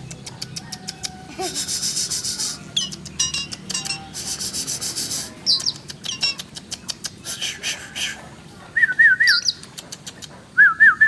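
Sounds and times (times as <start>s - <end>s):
starling harsh chatter: 0.2s - 8.9s.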